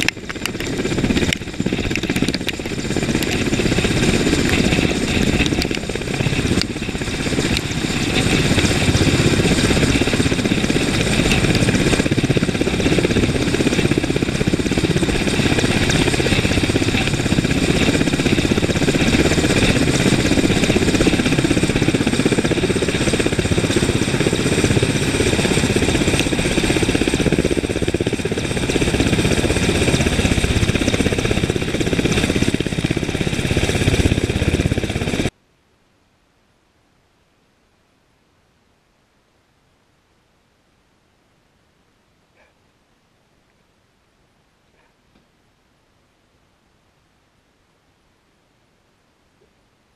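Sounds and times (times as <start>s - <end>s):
helicopter rotor noise: 0.0s - 35.3s
helicopter turbine whine: 0.0s - 35.3s.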